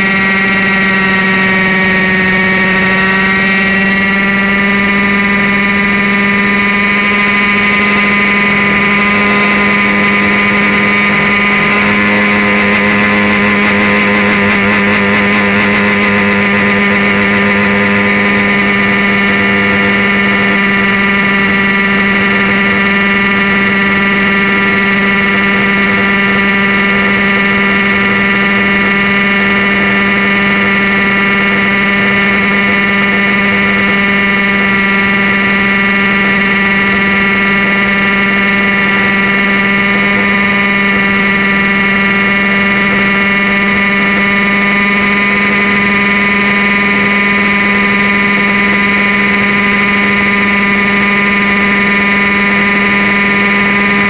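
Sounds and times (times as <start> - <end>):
radio-controlled helicopter whine: 0.0 - 54.0.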